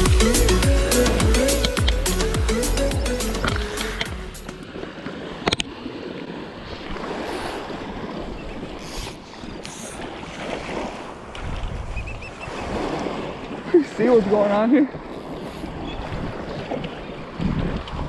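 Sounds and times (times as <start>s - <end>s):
surf washing onto beach: 3.5s - 11.9s, 12.5s - 18.0s
wind buffeting microphone: 5.3s - 18.0s
short high hisses: 8.8s - 10.0s.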